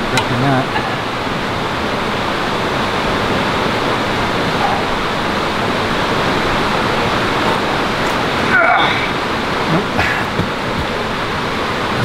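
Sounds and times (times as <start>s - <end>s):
fast-flowing water rushing: 0.0s - 12.0s.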